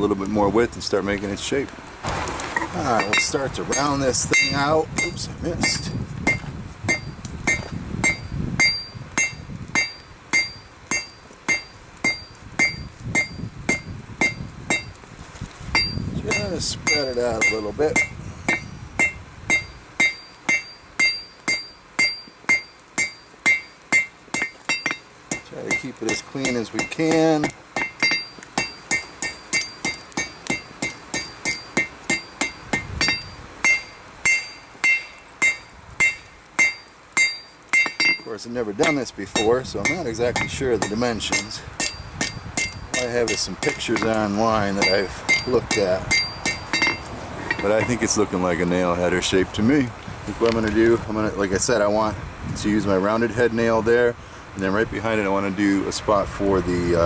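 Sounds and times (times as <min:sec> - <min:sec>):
anvil ringing: 0:03.0 - 0:14.9, 0:15.8 - 0:44.2, 0:44.8 - 0:47.9
hammer striking hot metal on anvil: 0:03.0 - 0:15.0, 0:15.7 - 0:47.9.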